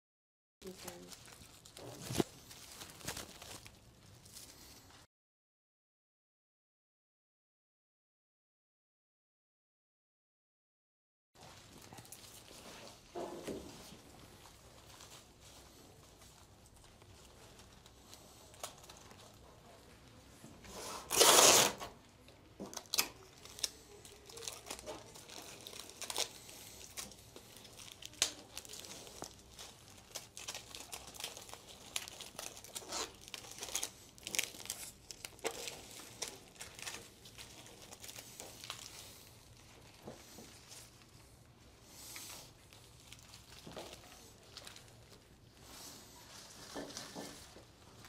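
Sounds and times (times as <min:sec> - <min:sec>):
flower stems rustling: 0:00.6 - 0:05.0, 0:23.2 - 0:48.0
adhesive tape ripping: 0:20.8 - 0:22.0, 0:22.8 - 0:28.8, 0:30.0 - 0:39.2.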